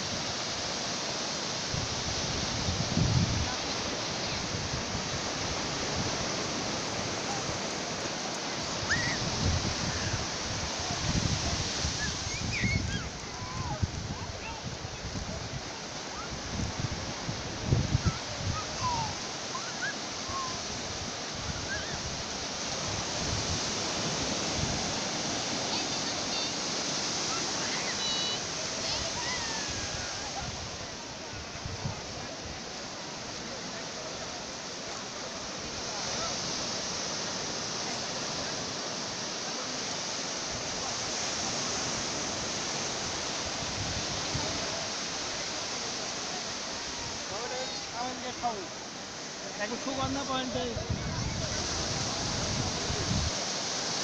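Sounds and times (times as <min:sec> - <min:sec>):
waves breaking on beach: 0:00.0 - 0:54.0
wind thumps on microphone: 0:50.9 - 0:53.3.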